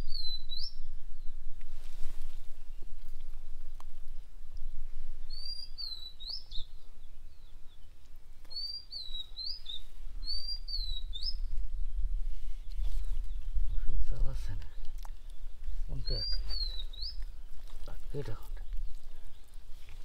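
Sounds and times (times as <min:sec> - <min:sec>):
bird whistling call: 0:05.3 - 0:06.7, 0:08.5 - 0:11.4.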